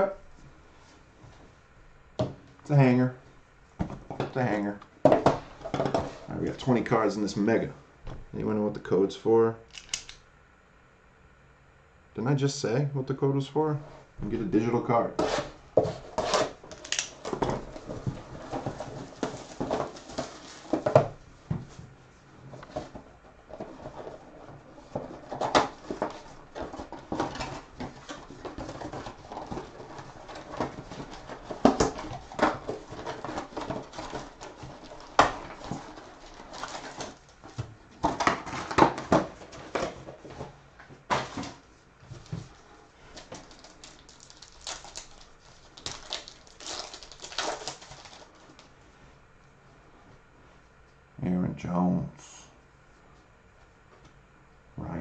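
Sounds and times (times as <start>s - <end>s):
foil wrappers crinkling and tearing: 15.4s - 20.9s, 23.6s - 40.0s, 42.2s - 48.7s.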